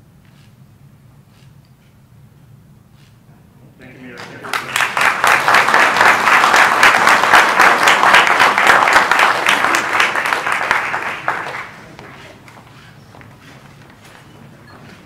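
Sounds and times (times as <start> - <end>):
audience applause: 4.0 - 12.8.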